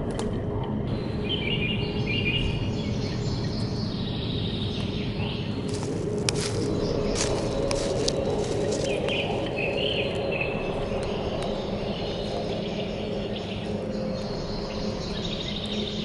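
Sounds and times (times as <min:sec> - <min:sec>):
birds chirping: 0:00.9 - 0:16.0
insects: 0:00.9 - 0:16.0
crackling clicks: 0:05.7 - 0:11.6.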